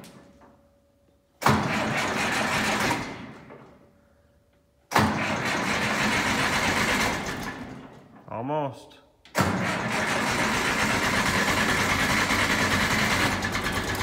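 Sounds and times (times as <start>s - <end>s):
starter cranking diesel engine: 1.4s - 3.2s, 5.0s - 7.8s, 9.4s - 14.0s.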